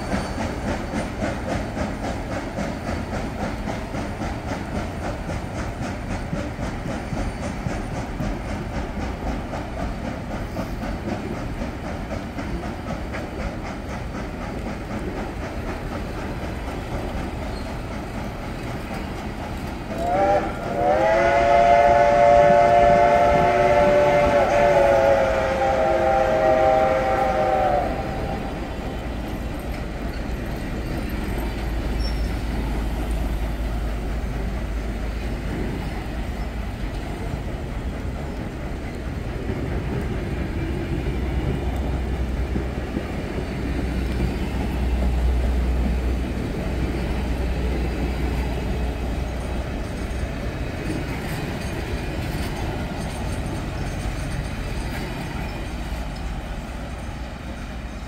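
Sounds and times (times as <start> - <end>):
train wheels clattering: 0.0 - 58.0
steam locomotive whistle blast: 19.9 - 29.2.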